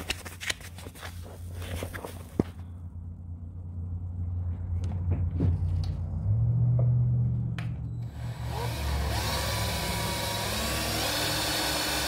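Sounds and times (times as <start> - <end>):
machine humming: 7.2 - 12.0.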